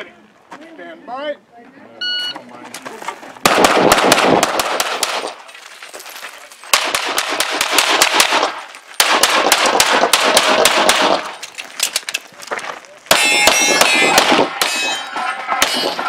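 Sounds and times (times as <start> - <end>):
rapid pistol fire: 3.4 - 5.4, 6.7 - 11.3, 13.1 - 14.7.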